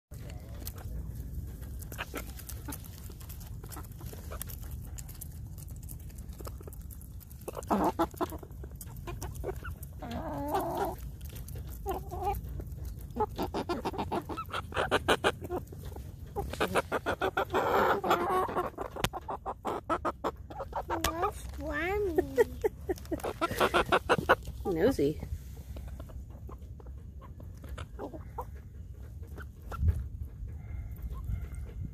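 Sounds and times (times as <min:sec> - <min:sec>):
beaks clicking on ground: 0:00.1 - 0:21.8
chickens clucking: 0:00.1 - 0:31.9.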